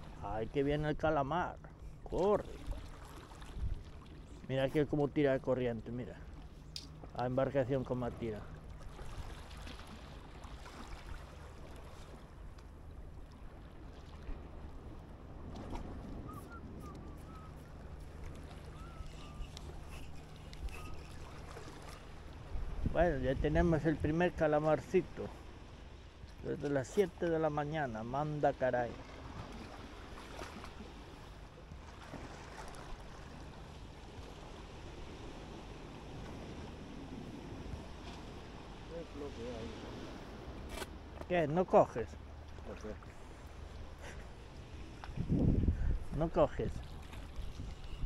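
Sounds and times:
water against shore rocks: 0:00.0 - 0:48.0
wind rumble on microphone: 0:02.0 - 0:05.1, 0:12.4 - 0:25.2, 0:44.4 - 0:48.0.

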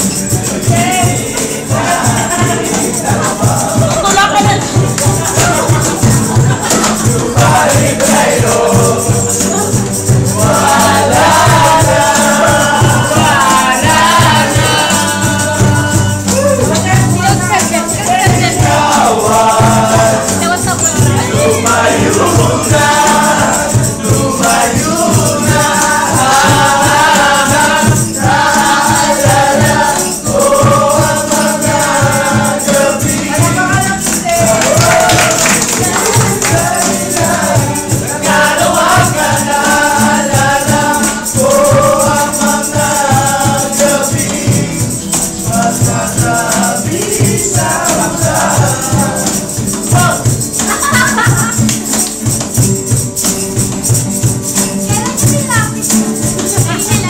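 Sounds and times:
men singing in chorus: 0:00.0 - 0:53.6
cajon beat: 0:00.0 - 0:57.0
strummed acoustic guitars: 0:00.0 - 0:57.0.

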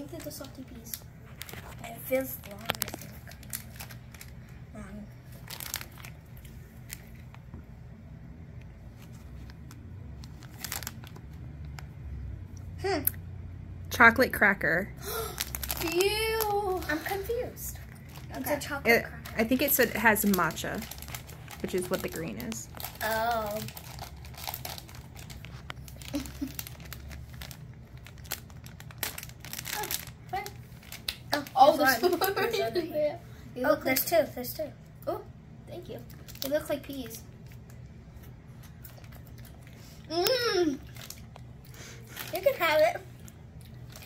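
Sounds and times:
plastic snack packet crinkling: 0:00.0 - 0:07.4, 0:08.9 - 0:11.9, 0:15.2 - 0:32.6, 0:36.1 - 0:37.8, 0:40.8 - 0:41.5, 0:42.1 - 0:43.0.

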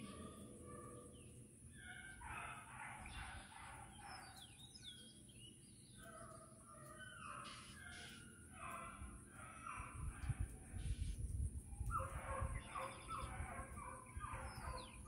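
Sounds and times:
bird chirps: 0:00.0 - 0:08.5, 0:11.8 - 0:15.0
dogs baying: 0:01.9 - 0:04.4, 0:06.0 - 0:10.4, 0:11.9 - 0:15.0.

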